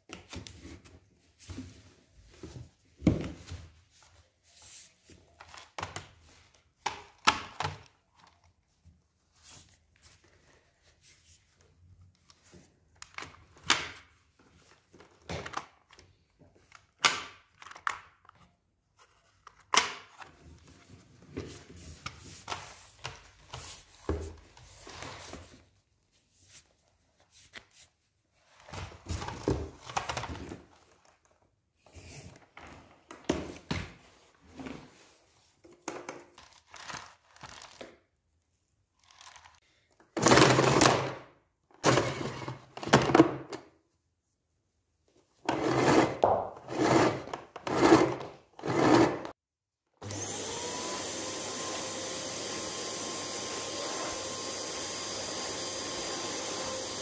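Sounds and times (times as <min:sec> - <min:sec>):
plastic vacuum parts knocking and clicking: 0:35.6 - 0:36.4, 0:41.8 - 0:43.7.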